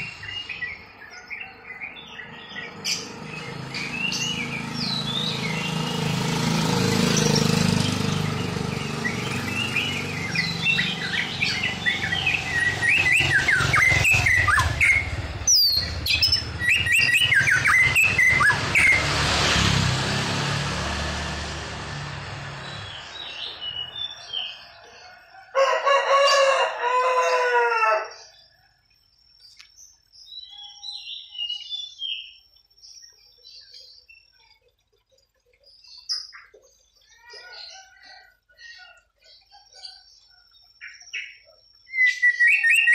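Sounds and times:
bird chirps: 0.0s - 19.1s, 22.6s - 25.4s, 28.1s - 42.9s
wavering crowing call: 8.9s - 19.0s, 24.3s - 28.4s
bird singing whistled phrases: 9.2s - 19.0s, 40.8s - 42.9s.

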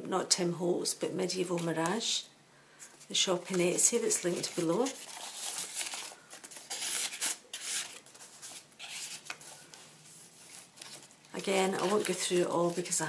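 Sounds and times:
paper pages rustling: 2.8s - 13.0s.

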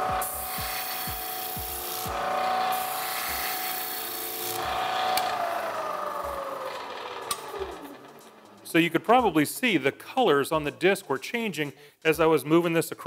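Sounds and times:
disc sander motor running: 0.0s - 8.7s
switch click: 7.3s - 7.5s.

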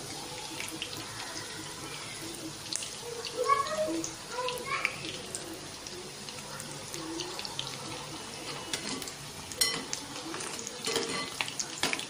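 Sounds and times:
potatoes deep-frying in oil: 0.0s - 12.0s
metal spoon clicking on pan: 9.6s - 10.0s.

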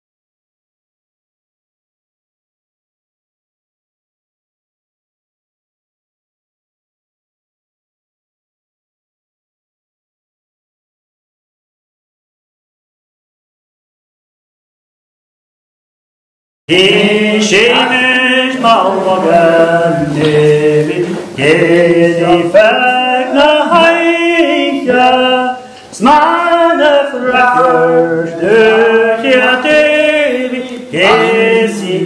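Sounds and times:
unaccompanied chant-like singing: 16.7s - 32.0s.

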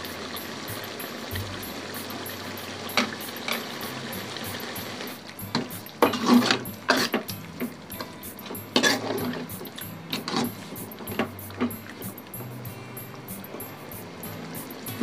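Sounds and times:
metal ladle scraping a pan: 5.5s - 11.6s.

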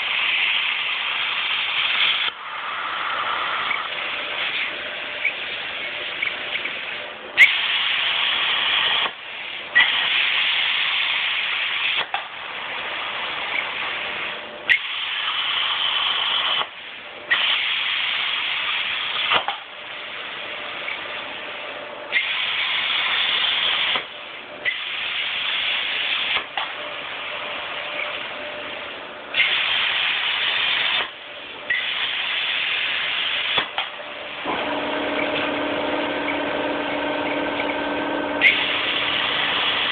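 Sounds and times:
plasma cutter arc hissing: 0.0s - 21.0s, 22.1s - 28.3s, 29.3s - 39.9s
sharp click of arc striking: 19.2s - 19.7s, 26.3s - 26.8s, 33.5s - 34.0s.

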